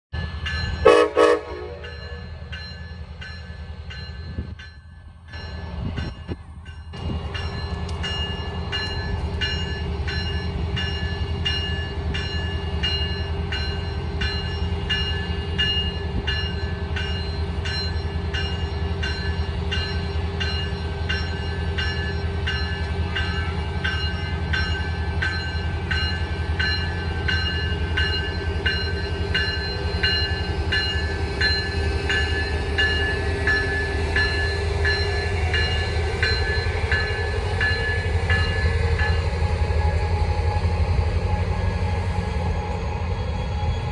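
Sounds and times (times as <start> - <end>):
diesel locomotive engine running: 0.2 - 43.9
locomotive bell ringing: 0.2 - 43.9
train horn blast: 0.8 - 2.2.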